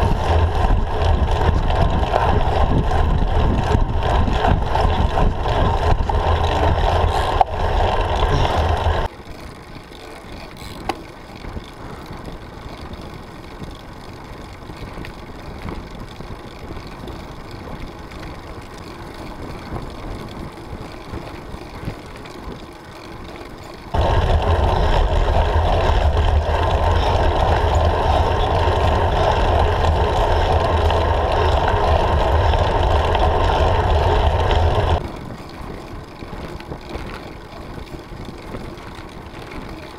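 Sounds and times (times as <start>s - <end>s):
rushing wind: 0.0s - 9.1s, 23.9s - 39.9s
road noise: 0.0s - 39.9s.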